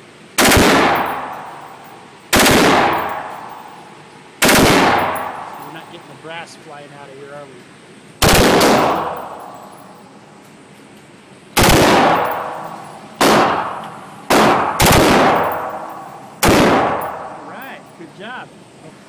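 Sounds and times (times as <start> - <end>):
rifle firing bursts: 0.4 - 5.7, 8.2 - 9.6, 11.6 - 17.3.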